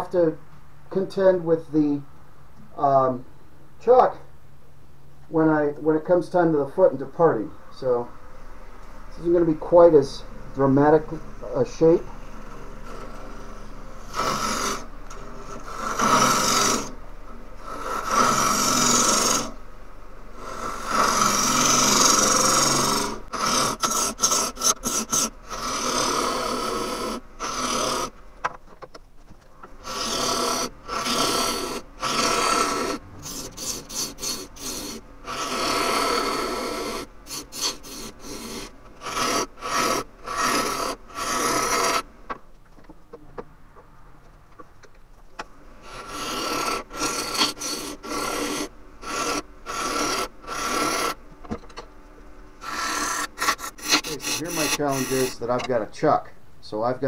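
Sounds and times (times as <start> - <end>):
gouge cutting wood on lathe: 10.7 - 17.0, 17.6 - 19.6, 20.4 - 28.2, 29.8 - 42.1, 45.8 - 51.2, 52.6 - 55.7.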